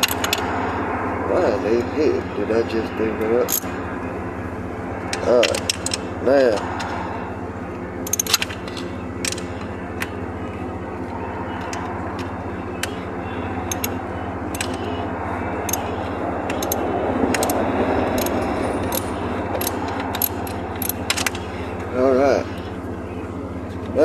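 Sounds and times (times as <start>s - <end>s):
ratchet clicking: 0.0s - 0.5s, 3.4s - 3.7s, 5.1s - 6.1s, 8.0s - 10.1s, 13.6s - 14.9s, 15.6s - 21.5s
steady low hum: 0.0s - 24.0s.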